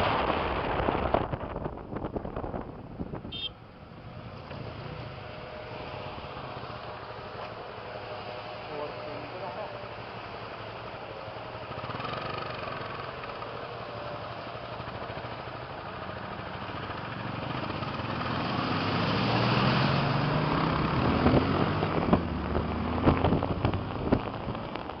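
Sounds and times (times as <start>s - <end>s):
road noise: 0.0s - 25.0s
vehicle engine accelerating: 11.4s - 25.0s.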